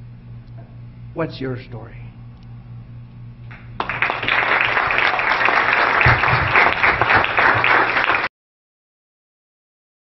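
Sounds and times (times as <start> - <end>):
audience applauding: 3.5 - 8.3.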